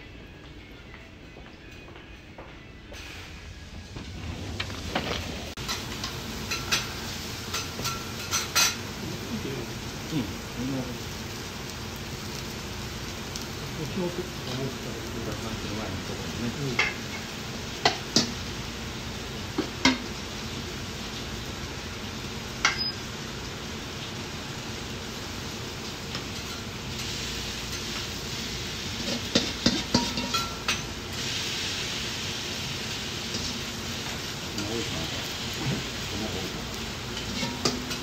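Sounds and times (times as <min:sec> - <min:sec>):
griddle sizzling: 0:03.0 - 0:38.0
metal utensils clinking: 0:04.9 - 0:08.8, 0:29.0 - 0:31.0, 0:37.1 - 0:38.0.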